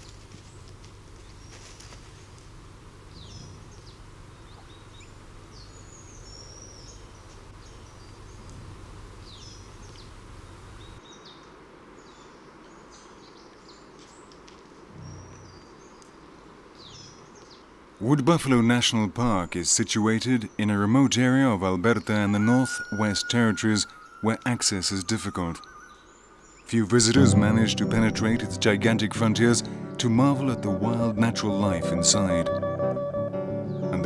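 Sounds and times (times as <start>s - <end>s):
low background rumble: 0.0s - 11.0s
birds chirping: 0.0s - 14.3s, 14.9s - 34.0s
steady hiss: 0.0s - 32.5s.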